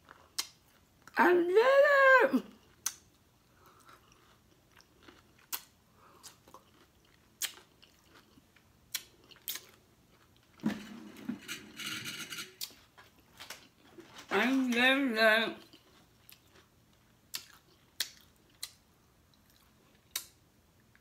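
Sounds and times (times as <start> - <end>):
chewing food: 2.5 - 10.6, 15.6 - 21.0
wet mouth clicks: 5.5 - 6.7, 17.3 - 18.8, 19.4 - 20.4.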